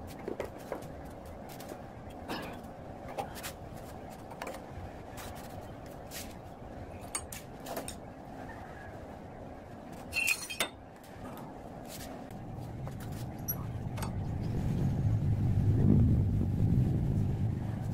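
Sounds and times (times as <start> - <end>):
steady background noise: 0.0 - 17.9.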